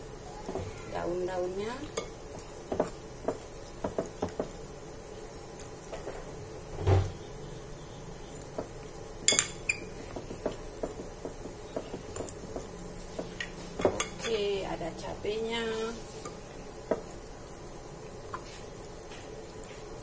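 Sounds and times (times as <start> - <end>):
spoon clinking against glass bowl: 9.3 - 9.9.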